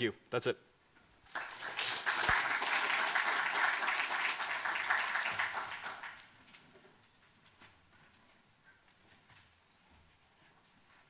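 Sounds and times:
audience applauding: 1.3 - 6.4.

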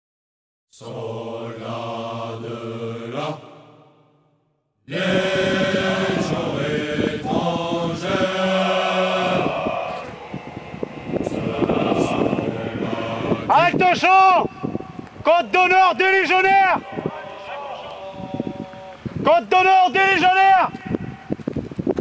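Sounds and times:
group of voices chanting: 0.8 - 4.0, 4.9 - 13.8
rough noisy sound: 4.9 - 13.6.

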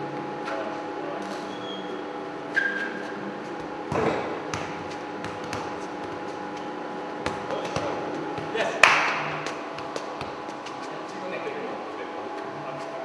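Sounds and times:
steady hum: 0.0 - 13.0
short squeak: 1.4 - 3.2
football kick thuds: 3.6 - 6.3, 7.2 - 8.6.

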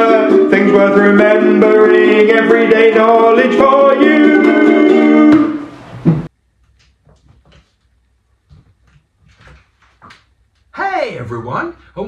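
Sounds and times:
faint knocks and rustles: 5.9 - 10.7.

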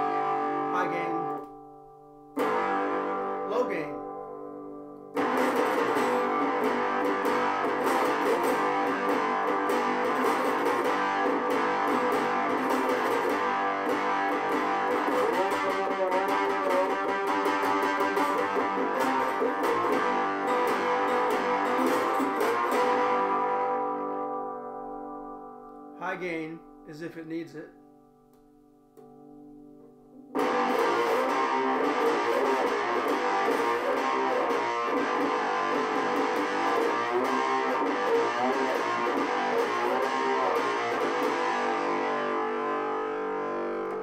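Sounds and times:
strummed cigar box guitar: 0.0 - 44.0.

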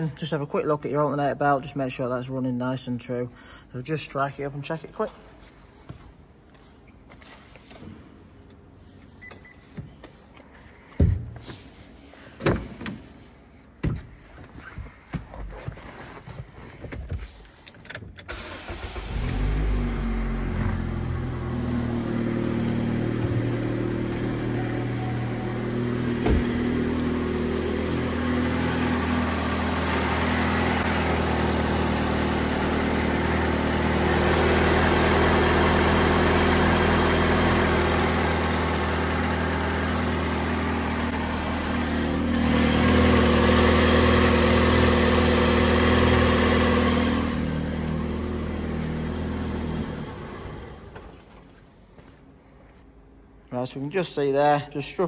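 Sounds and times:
car engine starting and idling: 16.6 - 51.5
exhaust blow: 18.8 - 51.2.

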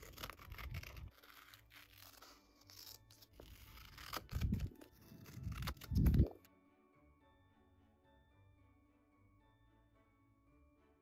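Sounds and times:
paper rustling: 0.0 - 6.4
scissors cutting paper: 0.0 - 6.5.

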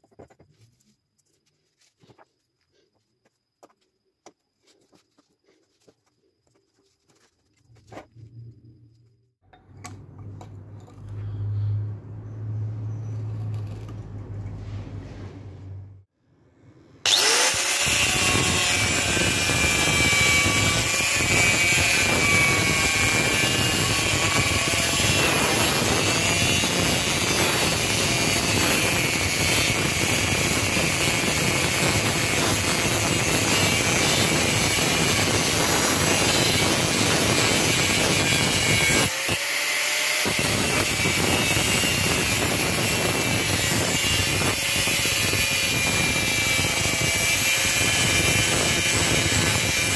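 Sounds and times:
angle grinder cutting steel: 17.0 - 49.9.

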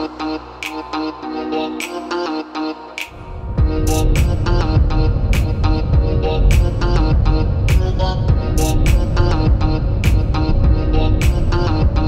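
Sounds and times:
melodic music with heavy bass: 0.0 - 12.0
sharp percussive hits: 3.0 - 10.4.

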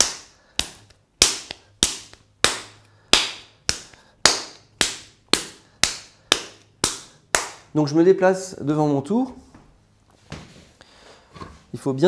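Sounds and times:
clay slapped between hands: 0.0 - 7.8.

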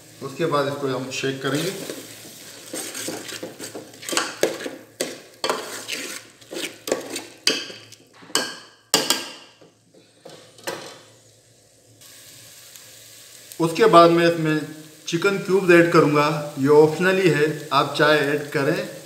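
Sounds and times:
spices sizzling in oil: 0.0 - 19.0
ladle scraping metal pot: 1.5 - 8.4.

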